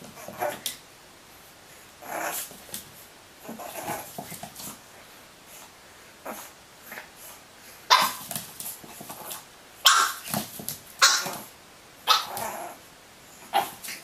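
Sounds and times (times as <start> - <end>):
puppy yapping: 7.9 - 8.2, 9.8 - 10.3, 11.0 - 11.5, 12.1 - 12.6.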